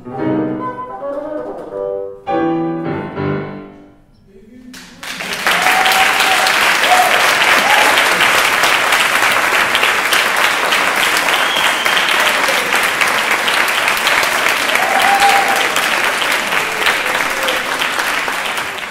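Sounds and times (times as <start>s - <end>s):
audience applauding: 4.7s - 18.9s.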